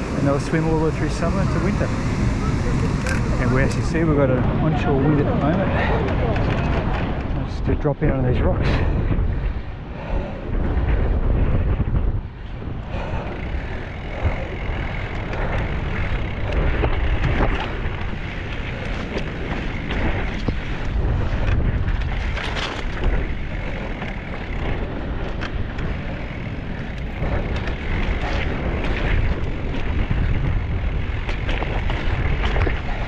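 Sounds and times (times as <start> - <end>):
wind buffeting microphone: 0.0 - 33.0
bike knocks and rattles: 10.6 - 33.0.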